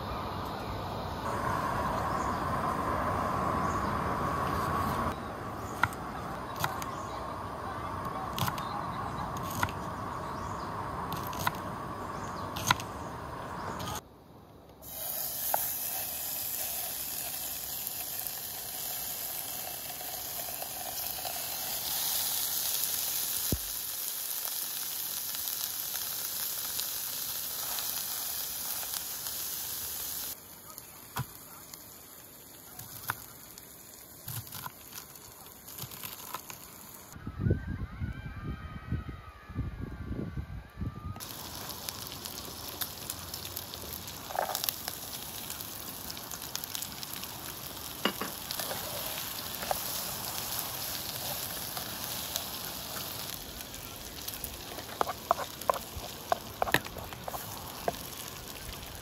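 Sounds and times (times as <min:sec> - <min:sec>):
meat sizzling in a pan: 0:14.8 - 0:37.2, 0:41.2 - 0:59.0.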